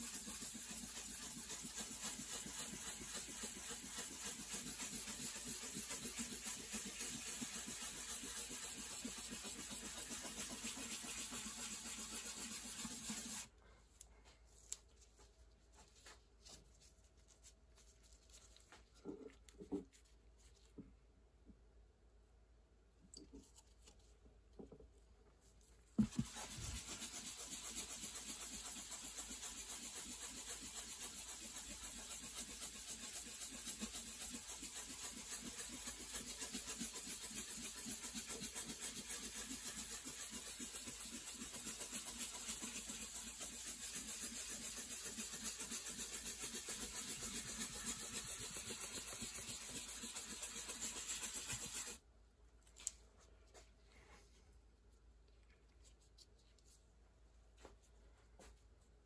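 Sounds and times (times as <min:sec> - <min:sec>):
pad scrubbing wood: 0:26.0 - 0:52.0.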